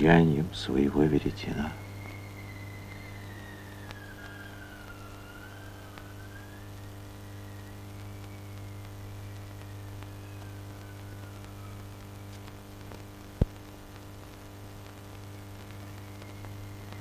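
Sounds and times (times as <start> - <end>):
faint whistling wind: 0.0 - 13.3
steady low hum: 0.0 - 17.0.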